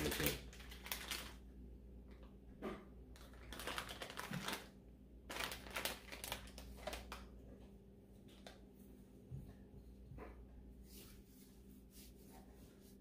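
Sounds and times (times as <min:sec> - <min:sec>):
foil sachet crackling: 0:00.0 - 0:01.4, 0:03.2 - 0:04.7, 0:05.3 - 0:07.3
hands rubbing and patting skin: 0:10.8 - 0:13.0.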